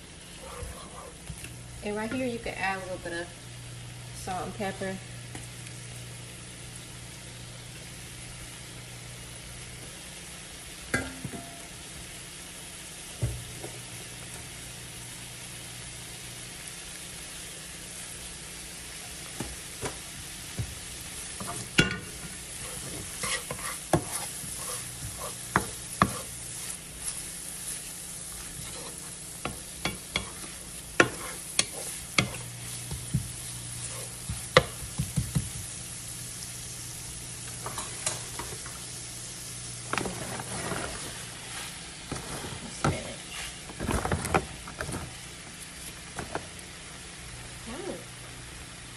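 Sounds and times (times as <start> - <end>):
onions sizzling in a pan: 0.0 - 48.9
wooden spoon knocking a pan: 34.2 - 35.7.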